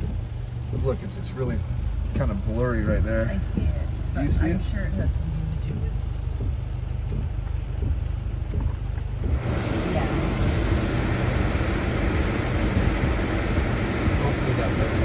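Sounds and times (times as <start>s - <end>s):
low rumble inside car: 0.0s - 15.0s
rain rushing hiss: 9.3s - 15.0s.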